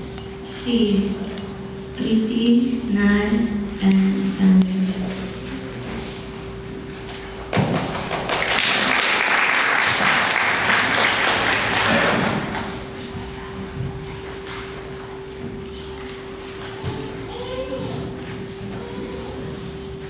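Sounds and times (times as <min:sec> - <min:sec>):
people clapping: 0:07.5 - 0:13.1.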